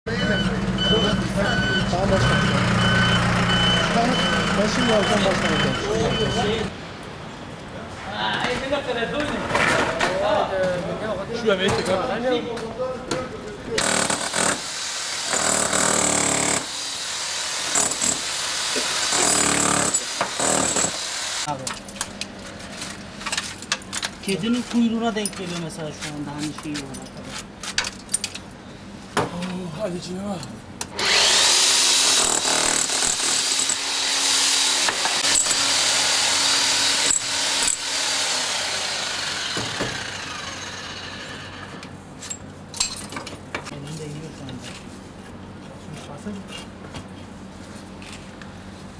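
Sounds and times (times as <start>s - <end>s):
rotary hammer chiselling stone: 13.8s - 16.8s, 17.6s - 21.1s, 32.0s - 33.9s
hammer drill boring into stone: 13.8s - 21.4s, 31.0s - 41.6s.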